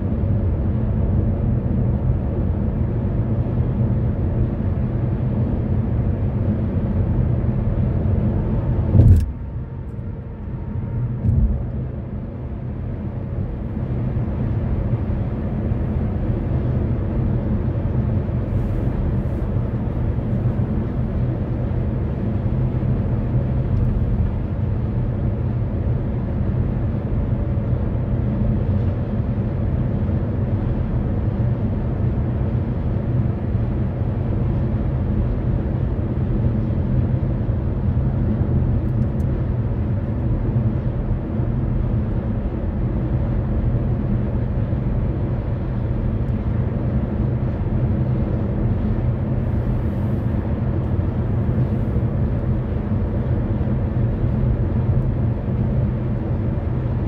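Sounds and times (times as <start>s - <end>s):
road and engine rumble: 0.0s - 57.0s
sharp thump: 8.9s - 9.4s, 11.2s - 11.6s.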